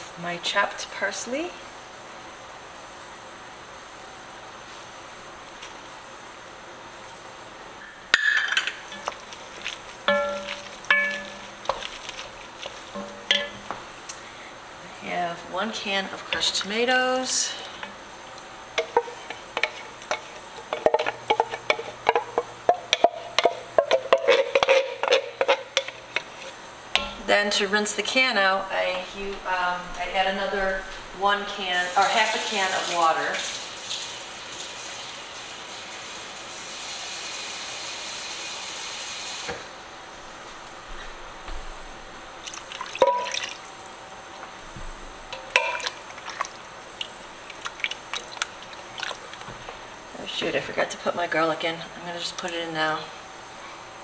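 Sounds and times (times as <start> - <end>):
metal ringing tone: 10.1 - 11.4
water pouring into a pot: 31.9 - 39.4, 42.4 - 43.9, 45.5 - 49.4.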